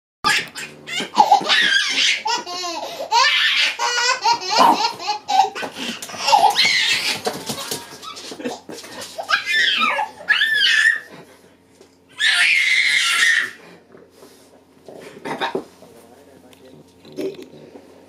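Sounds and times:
baby laughing: 0.2s - 11.1s.

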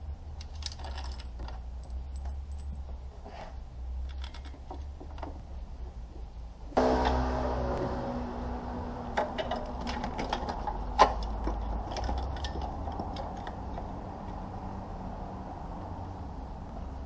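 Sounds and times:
metallic clicks of hand tools: 0.4s - 2.7s, 9.2s - 14.4s.

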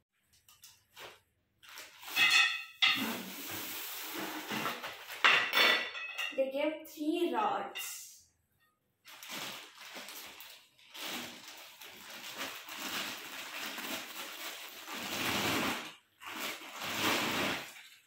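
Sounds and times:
plastic wrapping crinkling: 0.2s - 5.3s, 9.0s - 18.0s.

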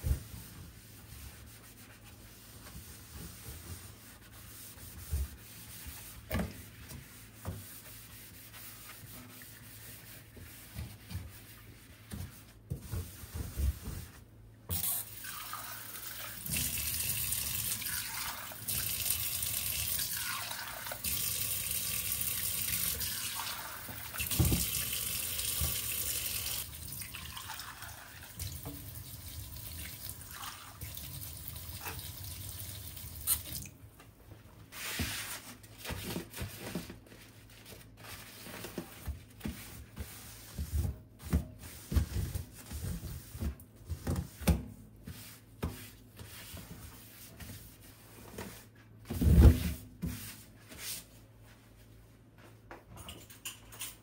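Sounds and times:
water running from a tap: 14.7s - 33.7s.

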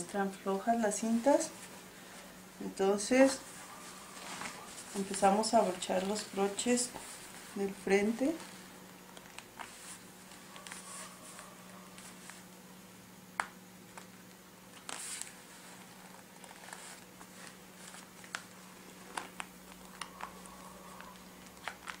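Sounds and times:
steady low hum: 0.0s - 22.0s
fabric rustle: 3.1s - 8.8s, 9.5s - 12.5s, 14.8s - 20.3s.

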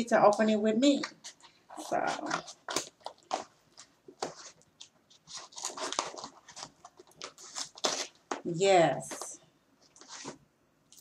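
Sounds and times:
package wrapping crinkling: 1.2s - 10.4s.

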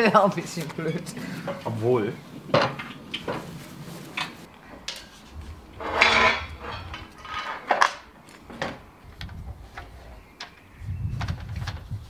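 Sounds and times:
low rumble: 4.7s - 8.2s.

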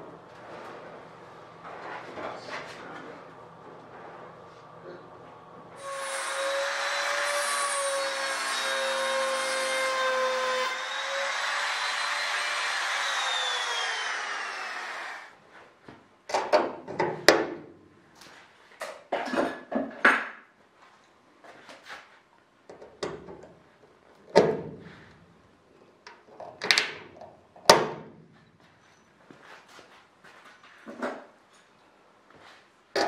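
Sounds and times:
small motor spinning down: 10.6s - 15.3s.

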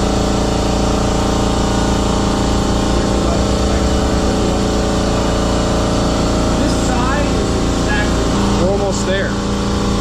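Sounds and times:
motor humming: 0.0s - 10.0s.

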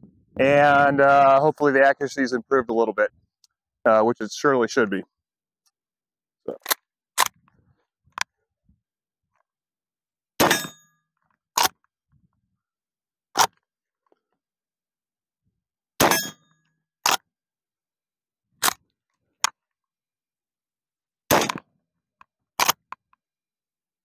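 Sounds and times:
metallic ring of steel targets: 10.4s - 10.9s, 16.0s - 16.5s
rifle shots: 21.3s - 21.6s.

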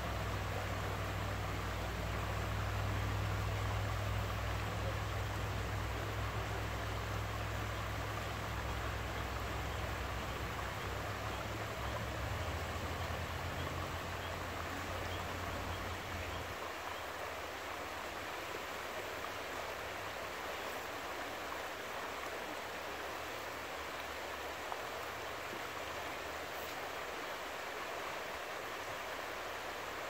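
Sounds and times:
river rippling over its bed: 0.0s - 30.0s.

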